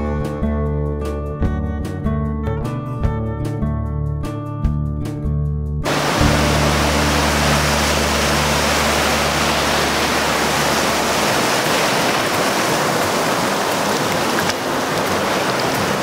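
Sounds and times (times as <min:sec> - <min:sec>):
surf washing and foaming: 0:05.8 - 0:16.0
low steady drone: 0:05.9 - 0:11.5.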